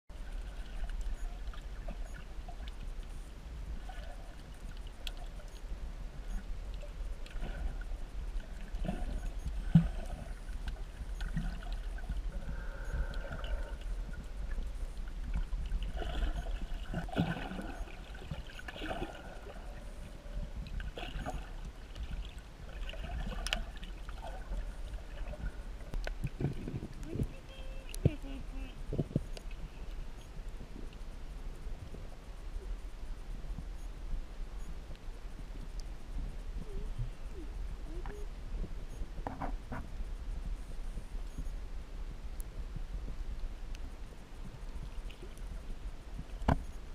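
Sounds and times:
faint crackles: 0.1s - 46.9s
muffled water swishes: 0.1s - 46.9s
underwater low rumble: 0.1s - 46.9s.

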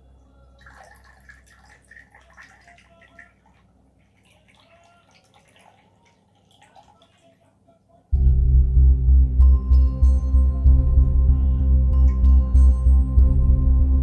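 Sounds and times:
liquid trickling into metal cup: 0.5s - 7.2s.

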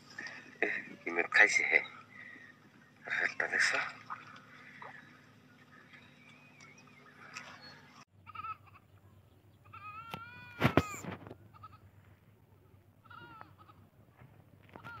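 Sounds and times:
goat bleating: 8.2s - 8.9s, 9.6s - 11.9s, 13.0s - 13.9s, 14.7s - 15.0s.

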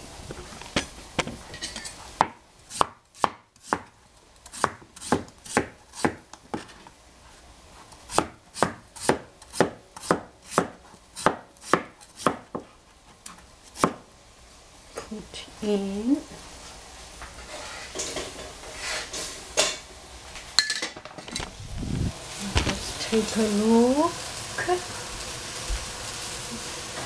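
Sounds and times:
knife chopping on cutting board: 2.2s - 3.9s, 4.5s - 6.2s, 8.1s - 12.7s.

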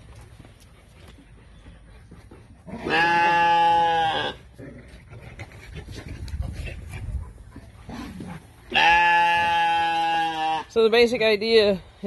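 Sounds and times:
faint knocks and shuffling: 0.0s - 2.7s
sheep bleating: 2.8s - 4.4s, 8.7s - 10.7s.

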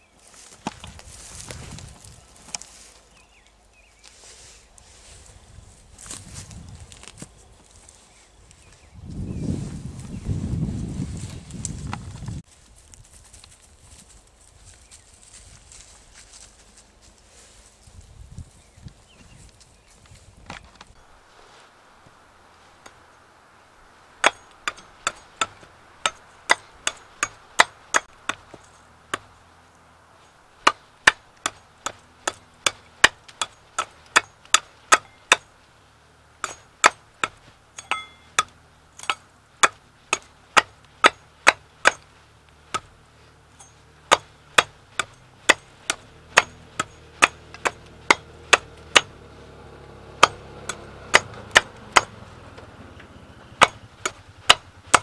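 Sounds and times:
hand tool striking wood: 24.2s - 29.4s, 30.6s - 35.6s, 36.4s - 49.2s, 50.1s - 52.2s, 53.6s - 55.0s.

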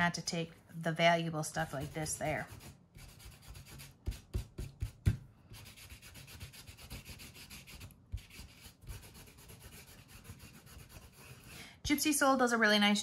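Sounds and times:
dauber rubbing on paper: 1.6s - 11.6s.

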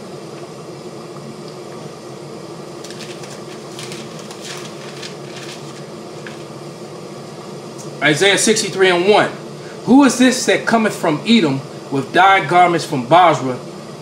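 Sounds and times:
room hum: 0.0s - 14.0s
paper pages rustling: 2.8s - 6.5s.

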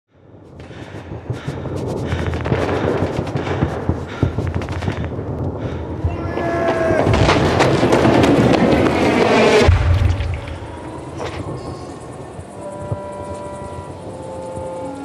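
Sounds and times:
rifle and machine-gun fire: 1.3s - 10.8s
artillery shots: 1.3s - 11.8s.

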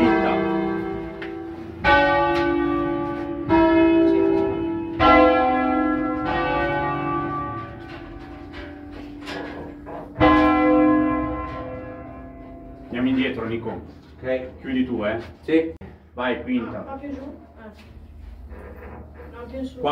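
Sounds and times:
church bells ringing: 0.0s - 13.8s.

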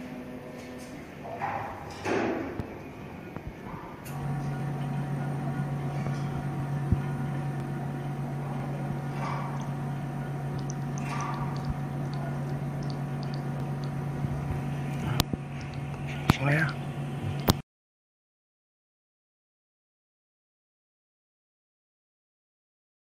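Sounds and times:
machine low hum: 1.9s - 17.6s.

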